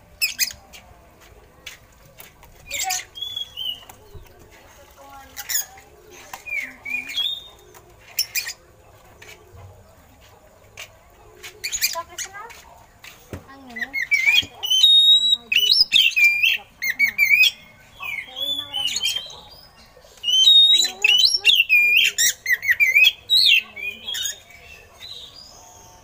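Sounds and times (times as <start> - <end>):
bird harsh rasping calls: 13.7 - 26.0.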